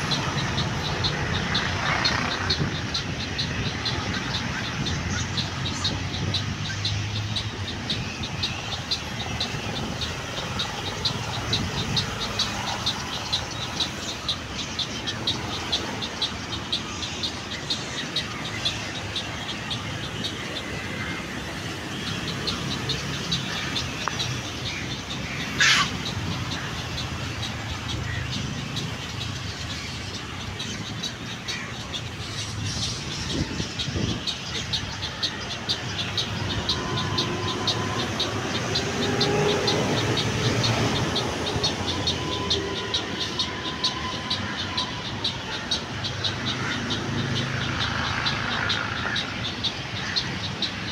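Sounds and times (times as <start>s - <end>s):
bird's rapid high ticks: 0.0s - 50.9s
birds calling: 0.0s - 50.9s
road traffic rumble: 0.0s - 50.9s
loud rising squeal: 36.2s - 48.3s.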